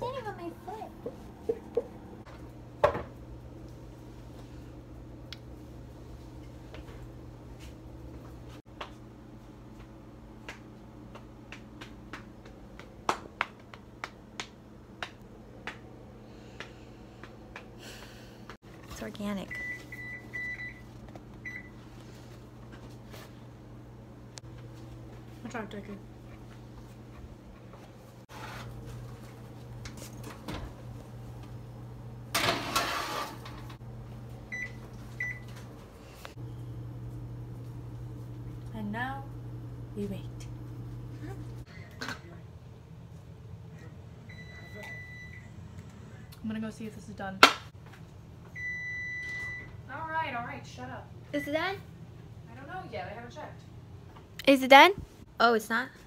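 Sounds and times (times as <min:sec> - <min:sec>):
low steady hum: 0:00.0 - 0:56.0
oven door shutting: 0:32.3 - 0:33.8
steady low hum: 0:33.4 - 0:56.0.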